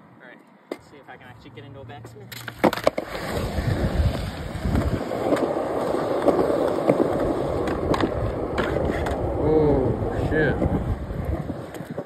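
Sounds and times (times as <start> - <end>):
skateboard wheels rolling on concrete: 0.7 - 12.0
skateboard clacks: 2.3 - 9.8, 10.5 - 12.0.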